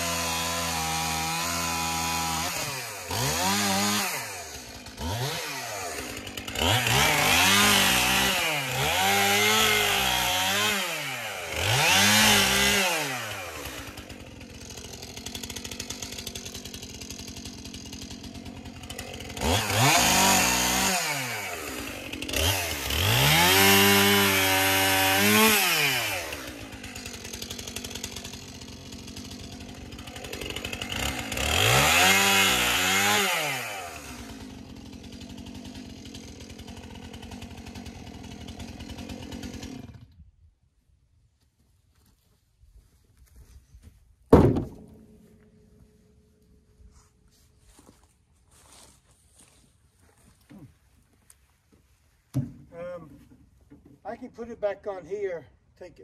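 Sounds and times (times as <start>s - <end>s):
chainsaw revving and idling: 0.0s - 40.3s, 44.3s - 47.0s.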